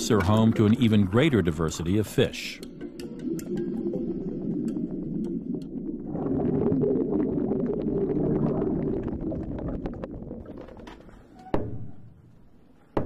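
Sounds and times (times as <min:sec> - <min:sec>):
faint crackling clicks: 0:02.6 - 0:06.0
underwater gurgling and bubbling: 0:02.7 - 0:11.3.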